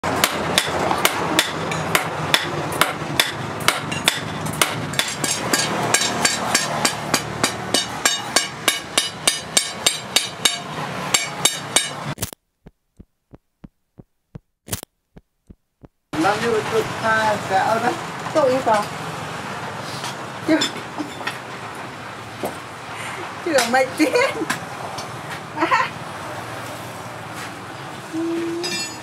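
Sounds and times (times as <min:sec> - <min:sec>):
hammer striking steel on anvil: 0:00.1 - 0:12.1.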